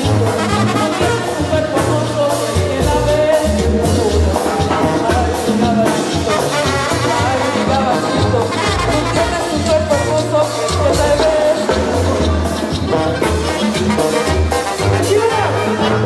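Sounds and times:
live band with horns: 0.0 - 16.0.

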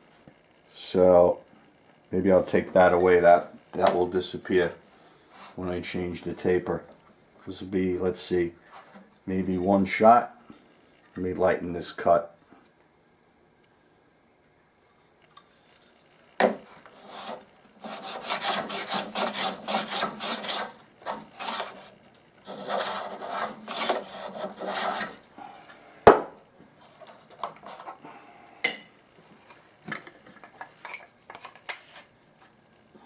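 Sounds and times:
plane scraping wood: 16.6 - 25.2.

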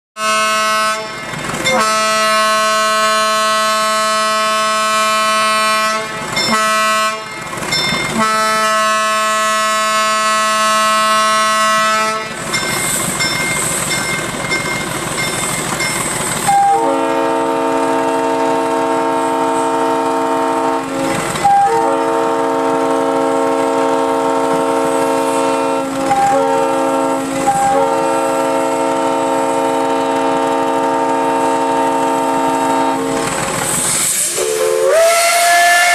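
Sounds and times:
steam whistle blasts: 0.2 - 7.3, 8.1 - 13.0, 16.4 - 35.9
steam hiss: 12.6 - 14.7, 33.2 - 35.9.

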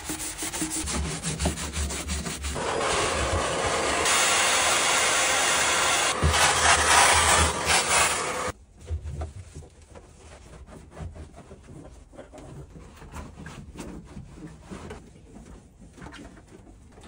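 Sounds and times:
cloth scrubbing sheet metal: 0.0 - 8.6.

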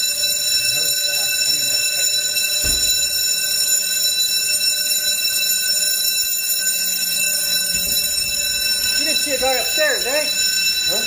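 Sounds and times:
fire alarm bells ringing: 0.0 - 11.0
low thump: 2.6 - 3.2.

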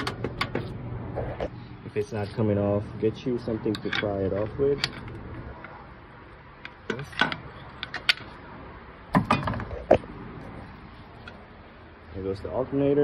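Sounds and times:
pry tool clanking on metal: 3.7 - 5.2.

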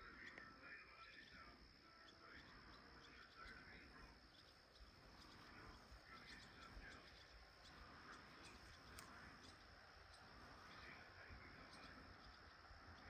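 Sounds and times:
faint high hiss: 0.0 - 13.0
faint ticks: 4.3 - 10.9.

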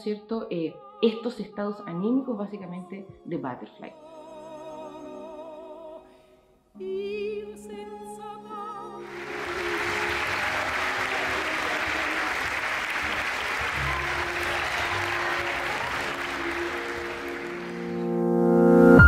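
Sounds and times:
faint sustained music tones: 0.0 - 19.0
audience applauding: 9.0 - 19.0.

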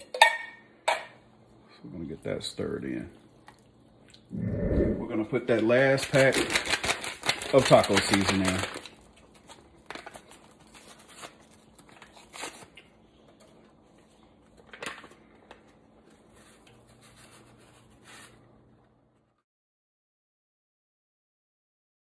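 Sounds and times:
crinkling and tearing of packet: 5.9 - 17.2.

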